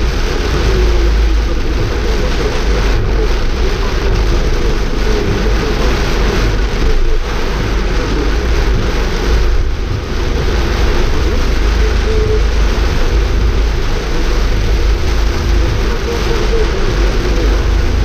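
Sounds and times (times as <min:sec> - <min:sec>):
heavy rain: 0:00.0 - 0:18.0
tyres on wet road: 0:00.0 - 0:18.0.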